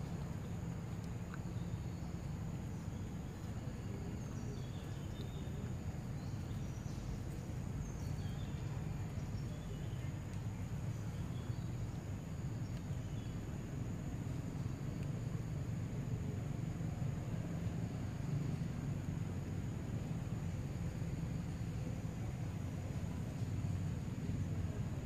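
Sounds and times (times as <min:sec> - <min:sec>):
outdoor background noise: 0:00.0 - 0:25.0
faint bird chirps: 0:00.4 - 0:12.0.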